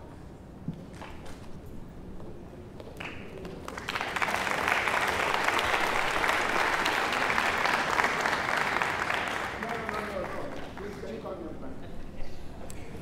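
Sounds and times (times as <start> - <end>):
audience applause: 3.0 - 11.2.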